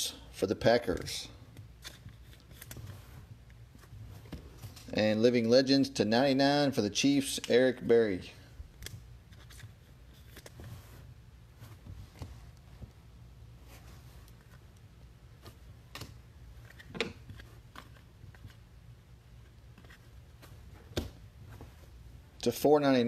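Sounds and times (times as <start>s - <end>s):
low steady hum: 0.0s - 23.0s
trading cards shuffled by hand: 1.8s - 4.9s, 8.8s - 12.8s.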